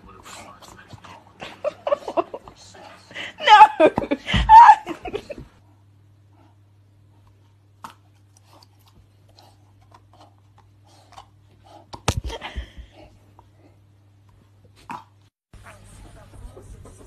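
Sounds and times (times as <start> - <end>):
dog chewing on a ball: 0.1 - 1.4, 7.1 - 12.1.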